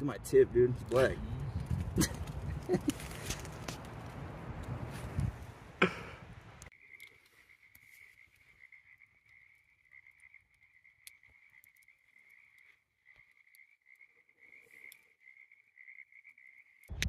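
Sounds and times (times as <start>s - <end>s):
night chorus of calling animals: 5.9s - 16.9s
faint ticks: 6.6s - 15.5s.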